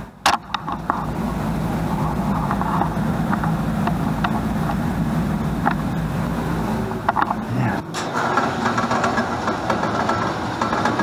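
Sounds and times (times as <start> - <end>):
low mechanical drone: 0.0 - 11.0
light mechanical clicks and knocks: 7.0 - 11.0.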